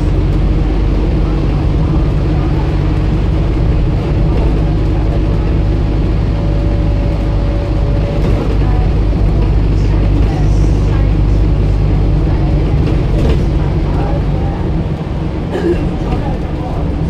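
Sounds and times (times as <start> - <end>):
bus diesel engine drone: 0.0 - 17.0.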